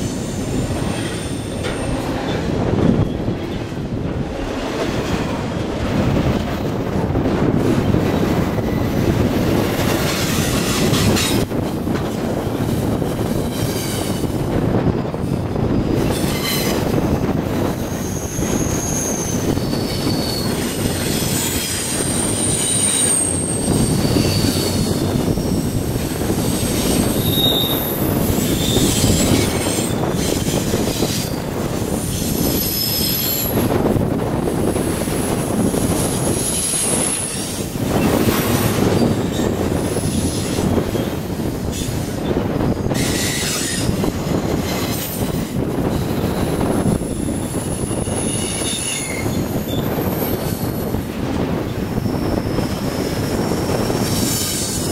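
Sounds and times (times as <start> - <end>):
train wheels rumbling on rail: 0.0 - 54.9
high-pitched wheel squeals: 17.8 - 31.4, 32.0 - 33.7, 46.0 - 50.5.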